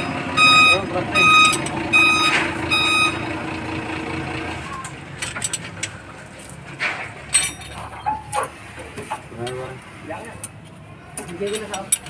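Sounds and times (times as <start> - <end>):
electronic beeper pulses: 0.0 - 3.3.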